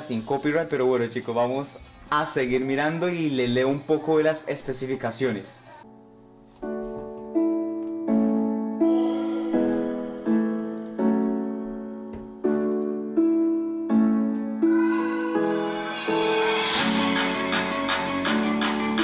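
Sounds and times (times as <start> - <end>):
piano chords through small speaker: 5.8 - 19.0.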